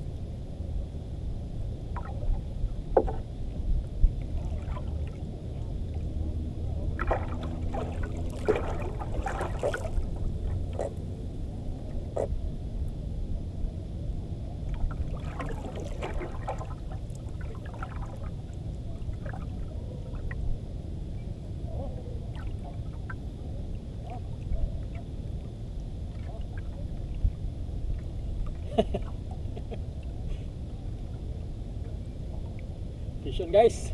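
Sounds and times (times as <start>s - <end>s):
wind and water rumble: 0.0s - 33.9s
light knocks on boat: 2.9s - 3.2s
water splashing: 4.2s - 5.7s, 6.9s - 11.0s, 14.7s - 18.4s.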